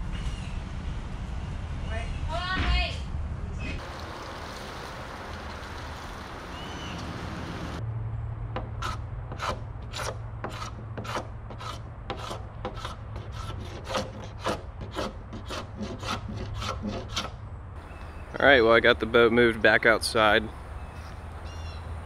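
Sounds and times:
hand scraper scraping a hull: 8.6 - 17.4.

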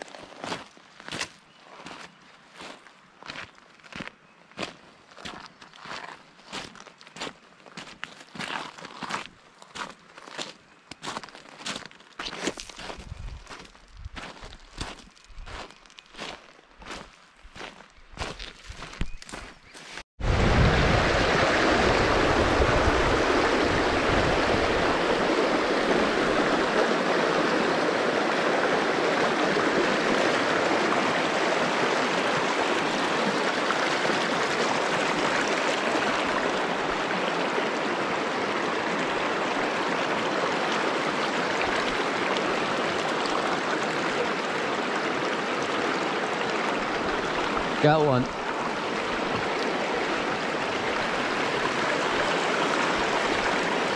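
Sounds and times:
river rushing over rocks: 20.2 - 53.9.

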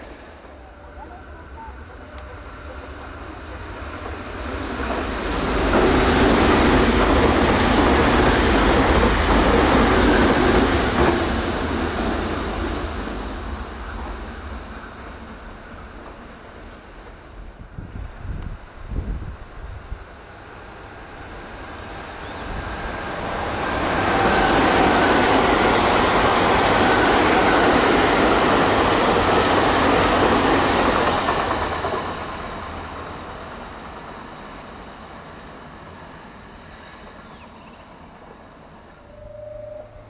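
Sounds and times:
electric train passing: 0.0 - 40.0.

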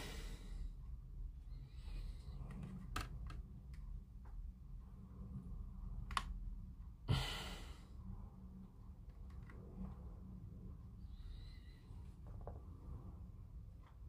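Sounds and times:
breathy exhale: 7.1 - 7.9.

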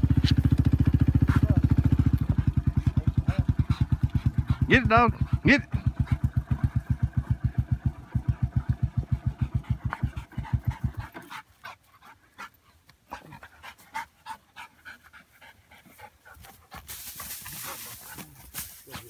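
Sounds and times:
atv engine idling: 0.0 - 12.5
hay rustling and clicking: 16.3 - 19.0.

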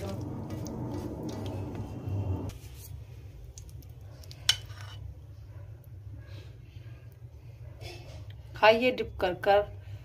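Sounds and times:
spatula scraping gravy from pan: 4.5 - 5.1.

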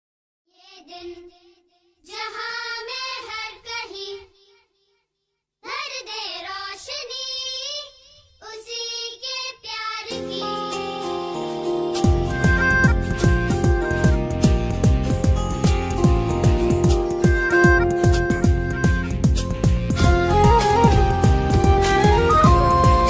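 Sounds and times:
instrumental music: 10.2 - 23.0.

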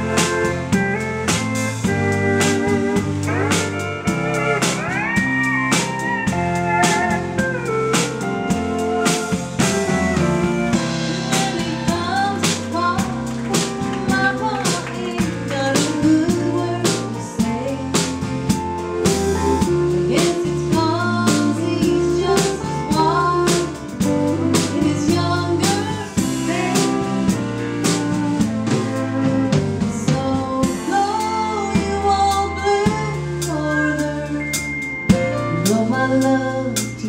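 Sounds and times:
country band playing: 0.0 - 37.0
pedal steel guitar: 0.0 - 37.0
woman singing: 10.7 - 28.5, 29.8 - 37.0.

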